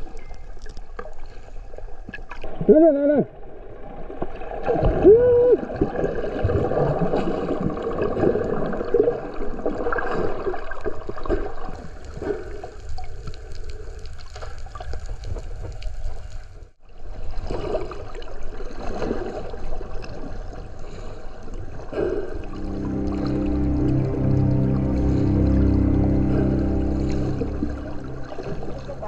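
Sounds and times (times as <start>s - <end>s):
water bubbling and gurgling: 2.1s - 12.3s, 21.9s - 29.0s.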